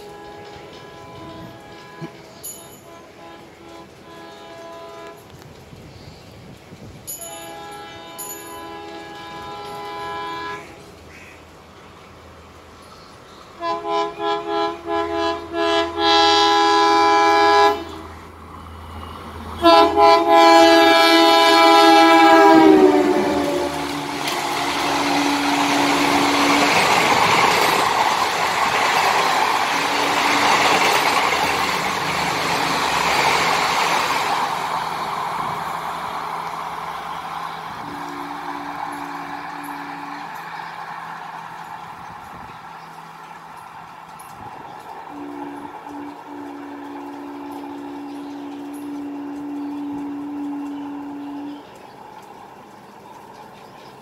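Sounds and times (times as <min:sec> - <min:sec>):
train coaches rolling past: 0:00.0 - 0:54.0.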